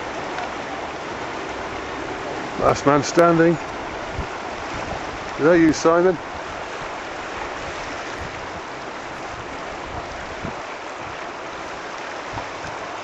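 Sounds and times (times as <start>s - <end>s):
rushing river water: 0.0s - 13.0s.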